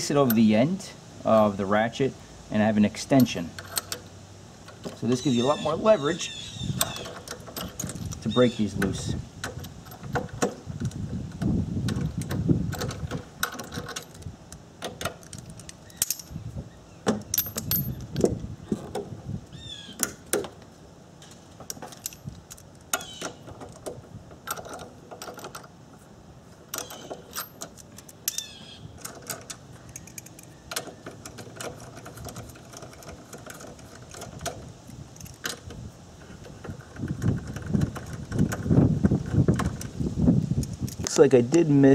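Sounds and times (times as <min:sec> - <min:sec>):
metal tools clinking: 0:00.0 - 0:00.7, 0:03.0 - 0:04.1, 0:04.7 - 0:10.9, 0:15.0 - 0:16.4, 0:17.1 - 0:18.9, 0:21.6 - 0:25.8, 0:26.6 - 0:35.7
socket ratchet clicking: 0:26.7 - 0:40.0.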